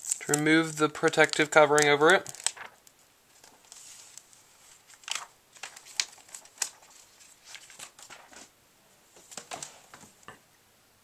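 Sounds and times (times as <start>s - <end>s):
plastic film being peeled: 0.0s - 8.5s.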